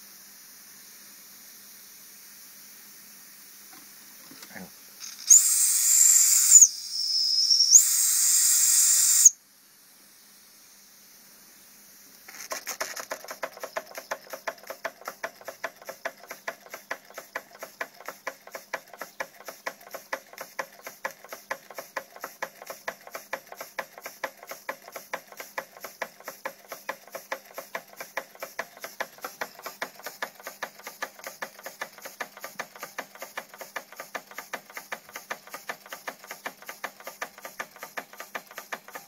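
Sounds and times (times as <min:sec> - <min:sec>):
shrill steam whistle: 0:05.2 - 0:09.4
steam engine chuffing: 0:12.6 - 0:39.0.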